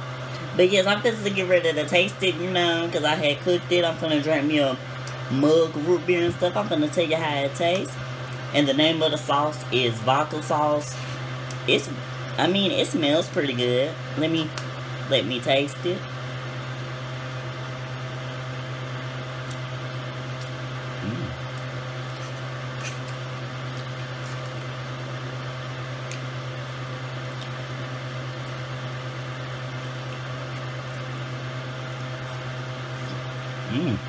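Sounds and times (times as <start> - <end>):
appliance motor humming: 0.0 - 34.0
vocal murmur: 21.0 - 21.4, 33.6 - 34.0.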